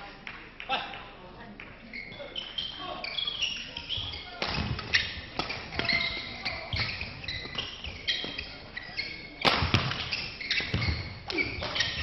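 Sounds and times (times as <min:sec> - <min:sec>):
shoes squeaking on court floor: 0:01.8 - 0:12.0
rackets hitting shuttlecock: 0:03.8 - 0:08.5, 0:09.4 - 0:12.0.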